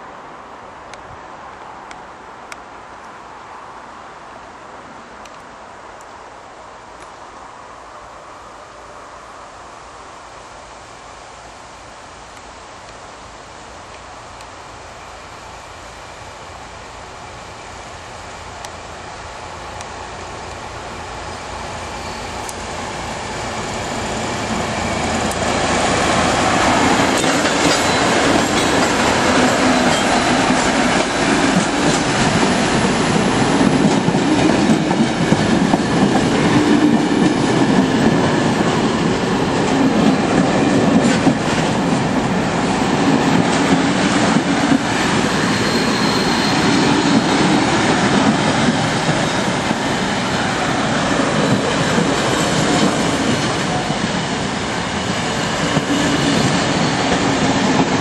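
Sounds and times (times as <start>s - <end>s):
diesel locomotives passing: 12.2s - 58.0s.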